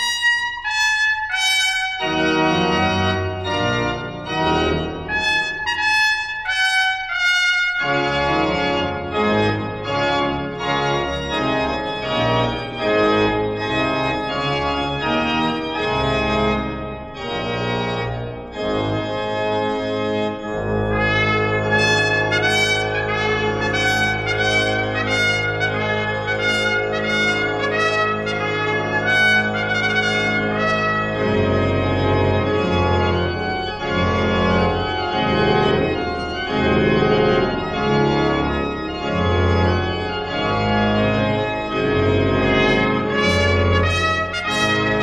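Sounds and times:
trumpet playing bright phrases: 0.0s - 2.3s, 5.0s - 8.0s, 20.9s - 31.6s, 42.5s - 45.0s
pipe organ: 0.0s - 45.0s.

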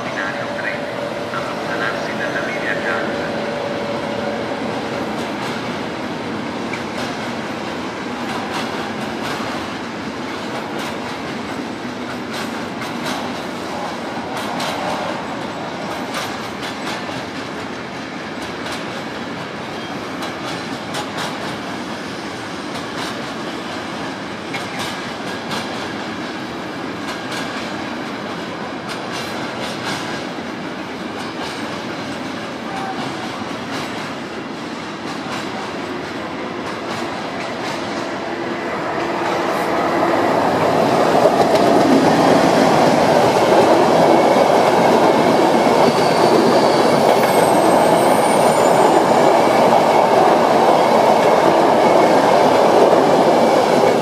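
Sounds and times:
passenger coaches passing: 0.0s - 17.9s, 26.7s - 54.0s
freight train rumbling past: 0.0s - 54.0s.

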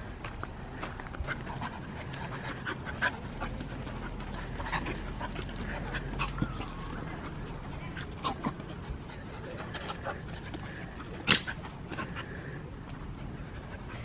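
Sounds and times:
dogs panting: 0.6s - 14.0s
dogs scuffling: 1.0s - 13.7s.

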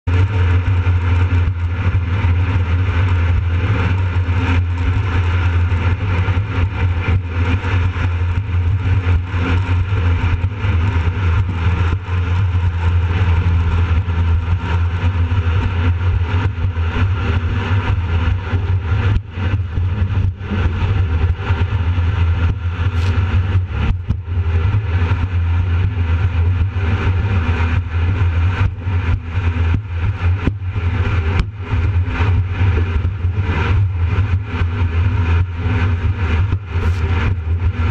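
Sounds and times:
boat engine and water-jet drone: 0.0s - 37.9s.

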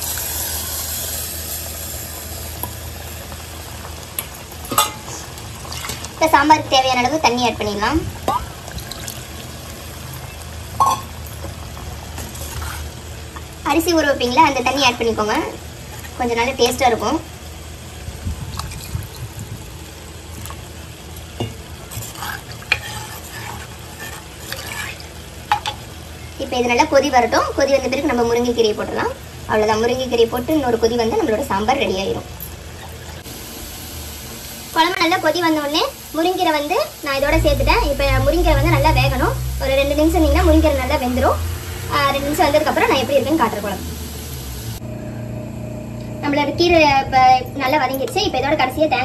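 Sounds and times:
steady hiss: 0.0s - 5.3s, 33.2s - 44.8s
pot simmering with hiss: 0.0s - 45.0s
low steady hum: 36.4s - 49.0s.

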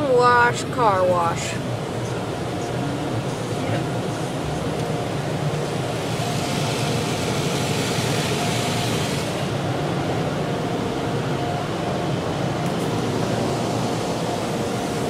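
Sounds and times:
water spraying on car: 0.2s - 10.2s.

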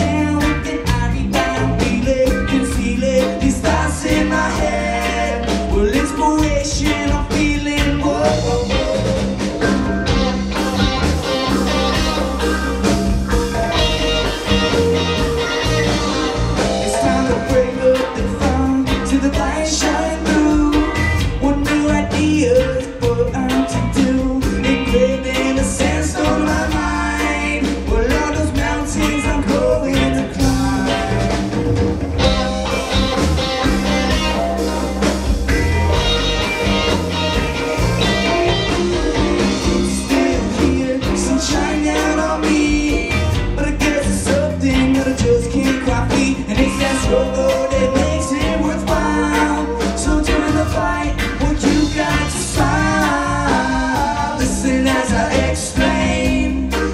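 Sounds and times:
male lead singer: 0.0s - 31.6s, 32.2s - 56.9s
bass: 0.0s - 56.9s
drums: 0.0s - 56.9s
electric guitar: 0.0s - 56.9s.

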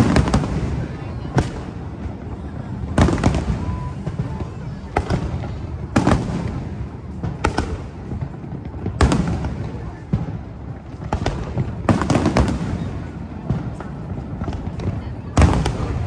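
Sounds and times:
fireworks bangs with echo: 0.0s - 16.0s.

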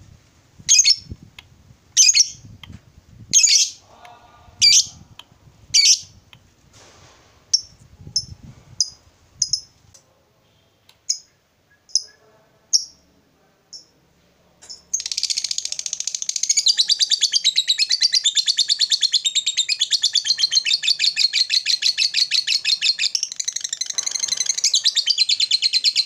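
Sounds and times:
lovebird chirping: 0.7s - 1.2s, 2.0s - 2.5s, 3.3s - 3.8s, 4.6s - 5.0s, 5.7s - 6.2s, 7.5s - 9.8s, 11.0s - 13.0s, 14.6s - 26.0s.

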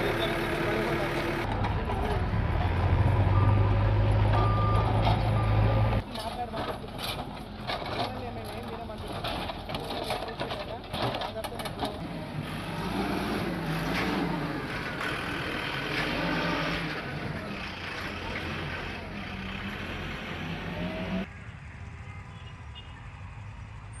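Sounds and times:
diesel engine revving: 0.0s - 6.0s, 11.8s - 21.3s
construction site background: 0.0s - 24.0s.

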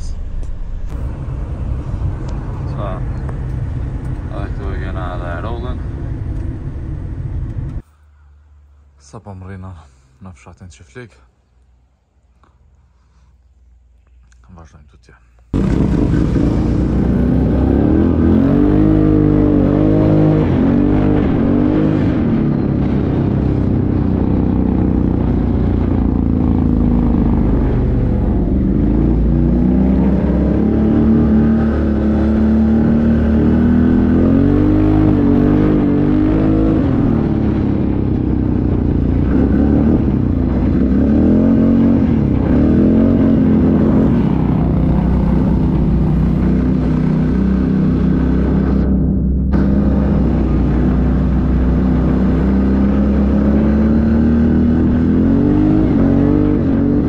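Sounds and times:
atv engine revving: 15.6s - 57.0s.

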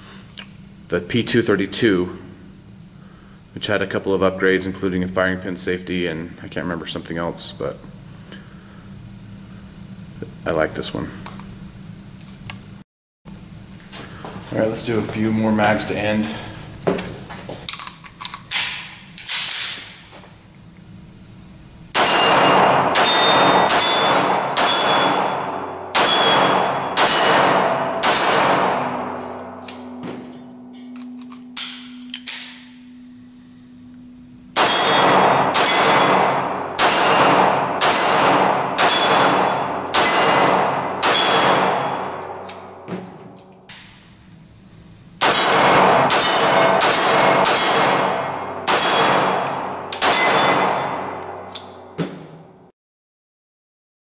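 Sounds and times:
pistol shots echoing: 22.0s - 30.0s, 34.6s - 42.9s, 45.2s - 51.8s
steel targets ringing: 22.0s - 42.9s, 45.2s - 52.0s.

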